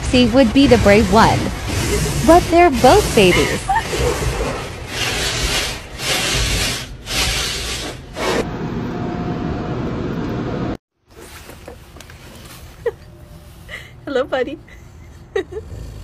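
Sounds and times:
water spray and brushes on car: 0:00.6 - 0:08.4.

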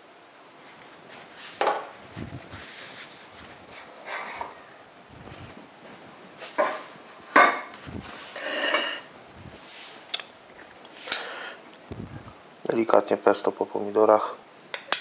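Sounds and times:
dishes clinking on wood: 0:06.6 - 0:07.7, 0:08.4 - 0:09.1.

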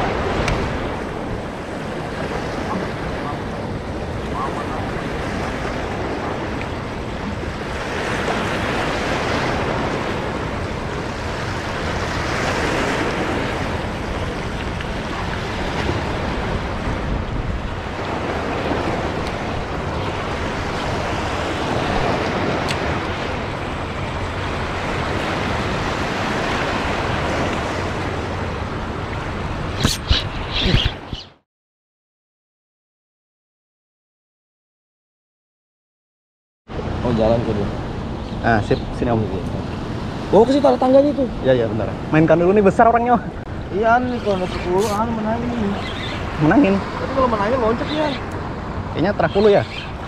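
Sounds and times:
sea waves washing at shore: 0:00.0 - 0:31.3, 0:36.7 - 0:50.0
wind buffeting microphone: 0:00.0 - 0:31.4.

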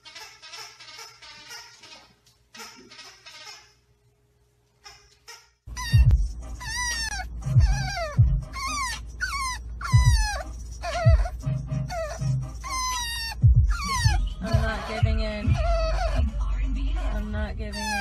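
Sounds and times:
puppy whining: 0:04.9 - 0:18.0
low rumble of car: 0:06.0 - 0:18.0.

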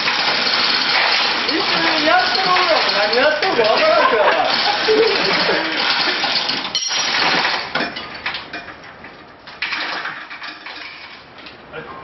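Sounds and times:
metal chain rattling and clinking: 0:00.1 - 0:08.2.

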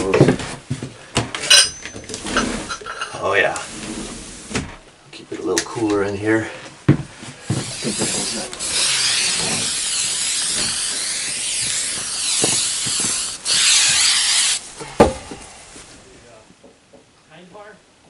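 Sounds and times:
spray-paint can hissing: 0:07.5 - 0:14.7.

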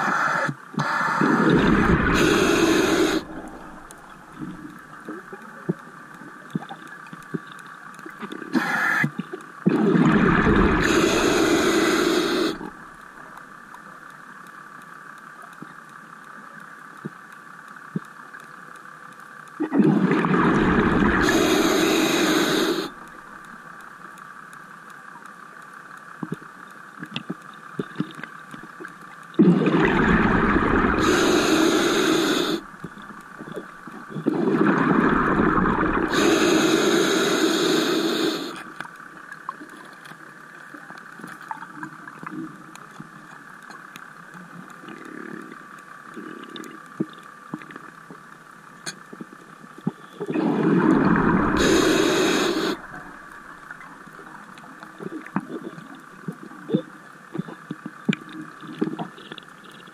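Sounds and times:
diver's breath bubbling underwater: 0:00.0 - 0:04.6, 0:19.7 - 0:23.0, 0:29.4 - 0:33.6, 0:34.2 - 0:38.6, 0:50.3 - 0:53.3.

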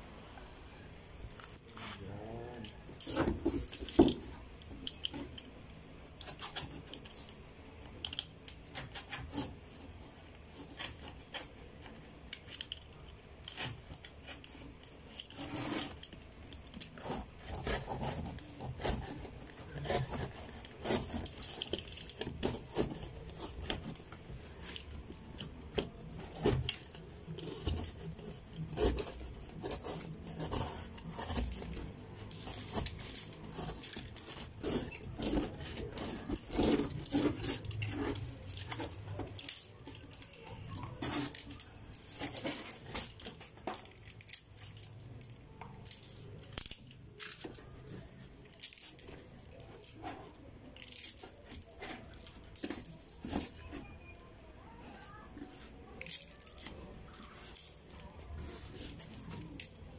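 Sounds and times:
scraping: 0:08.2 - 0:44.8.

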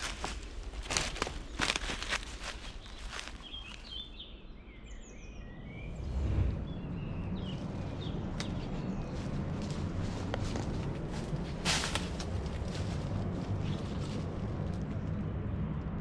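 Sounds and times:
footsteps on dry leaves: 0:00.0 - 0:04.2, 0:07.4 - 0:15.0
small birds chirping: 0:00.0 - 0:14.4
steady low rumble: 0:00.0 - 0:16.0.

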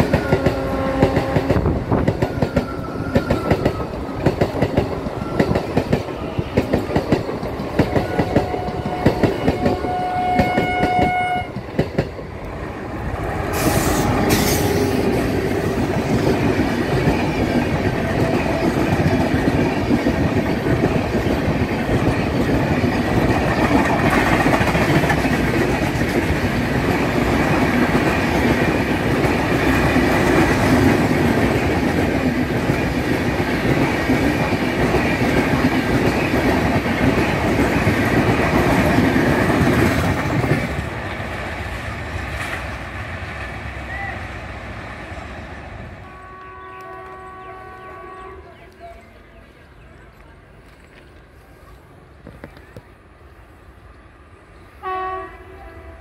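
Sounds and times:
train wheels clicking over rail joints: 0:00.0 - 0:12.6, 0:13.2 - 0:43.7
rumble of train wheels on rail: 0:00.0 - 0:56.0
train horn: 0:00.2 - 0:01.8, 0:07.9 - 0:11.6, 0:13.5 - 0:15.1, 0:46.0 - 0:48.6, 0:54.8 - 0:56.0.

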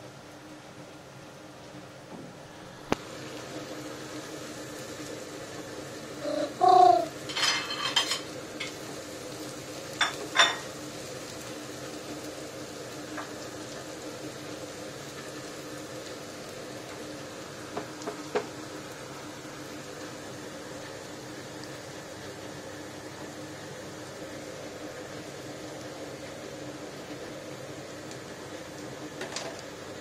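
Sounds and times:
garlic sizzling in oil: 0:02.4 - 0:30.0.

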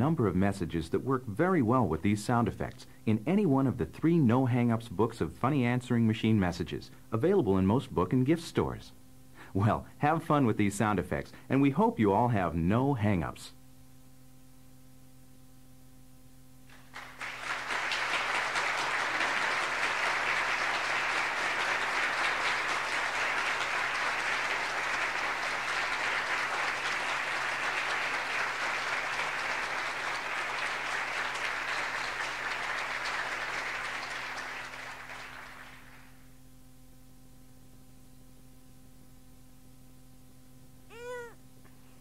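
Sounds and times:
faint steady hum: 0:00.0 - 0:42.0
crowd applause: 0:16.7 - 0:36.2.

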